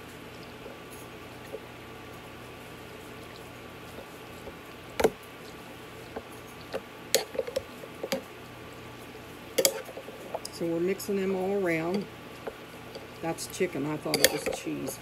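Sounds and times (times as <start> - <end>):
utensil clinking on glass: 14.1 - 15.0.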